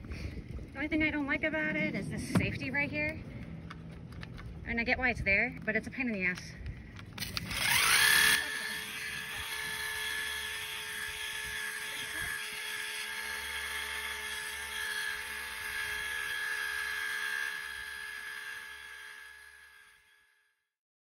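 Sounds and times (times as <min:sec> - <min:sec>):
pump whine: 0:06.6 - 0:20.7.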